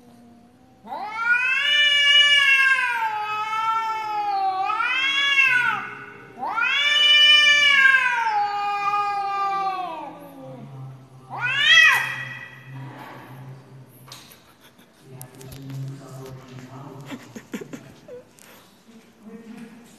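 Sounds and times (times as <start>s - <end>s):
cats yowling: 0.8s - 10.4s, 11.3s - 12.7s.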